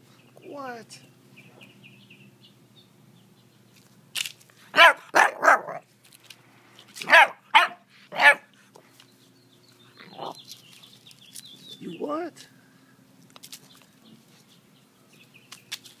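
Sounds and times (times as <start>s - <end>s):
puppy barking: 4.7s - 5.8s, 7.0s - 8.5s.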